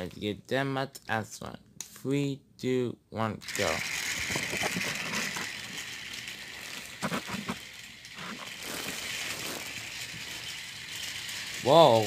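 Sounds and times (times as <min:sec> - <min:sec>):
toy train motor whirring: 0:03.4 - 0:12.0
wheels clicking over track joints: 0:03.5 - 0:12.0.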